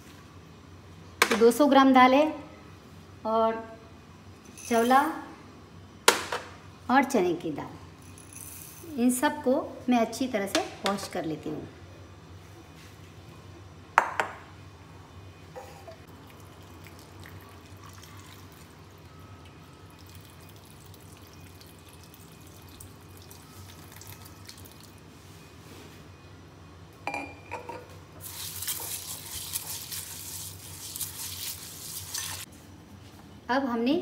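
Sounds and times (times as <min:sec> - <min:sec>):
glass bowl clinking: 0:27.0 - 0:27.9.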